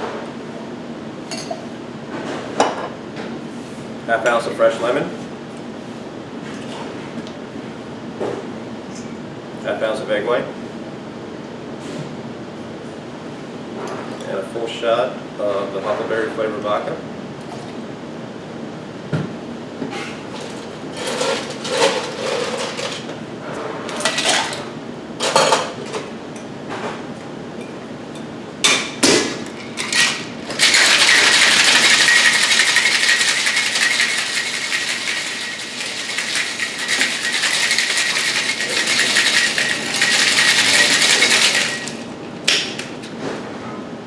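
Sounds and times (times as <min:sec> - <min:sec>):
ice and metal tins clinking: 0:29.8 - 0:42.0
ice rattling in metal shaker: 0:29.8 - 0:42.1.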